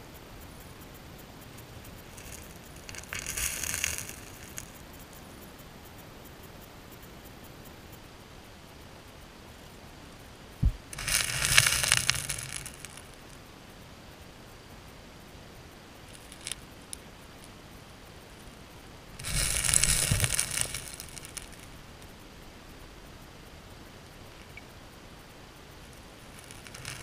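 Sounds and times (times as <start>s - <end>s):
underwater gravel rattling: 2.0s - 4.8s, 10.6s - 13.3s, 16.1s - 16.6s, 19.2s - 21.7s, 26.3s - 27.0s.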